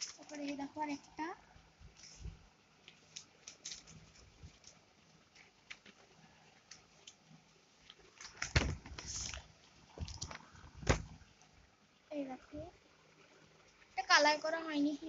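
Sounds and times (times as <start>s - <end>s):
book thump: 8.5s - 9.1s, 10.8s - 11.2s.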